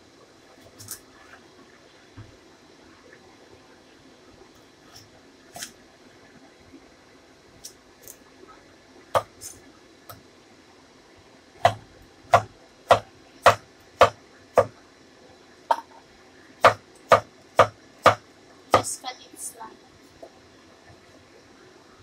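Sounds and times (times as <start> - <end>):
cleaver chopping on wooden board: 11.6 - 14.7, 16.6 - 18.2.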